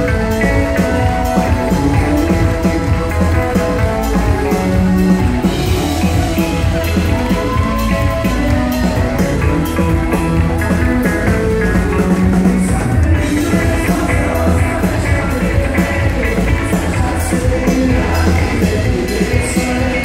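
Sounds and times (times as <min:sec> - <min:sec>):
drum kit beat: 0:00.0 - 0:20.0
electric guitar: 0:00.0 - 0:20.0.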